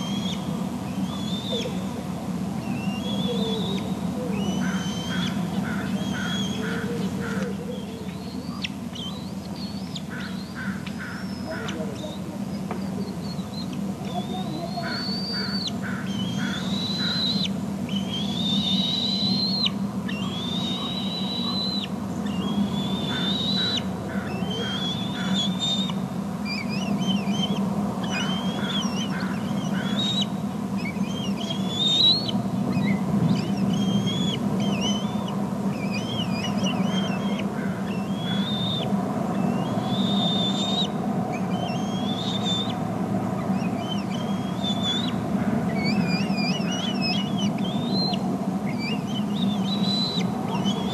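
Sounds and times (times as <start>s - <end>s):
eaglet food-begging calls: 0.0s - 2.0s, 2.6s - 42.8s, 43.4s - 50.9s
steady low hum: 0.0s - 50.9s.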